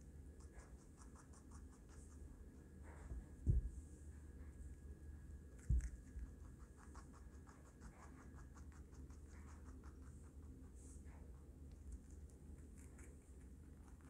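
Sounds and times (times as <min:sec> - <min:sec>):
rabbit chewing vegetables: 0:00.0 - 0:14.0
low thump: 0:03.1 - 0:03.8.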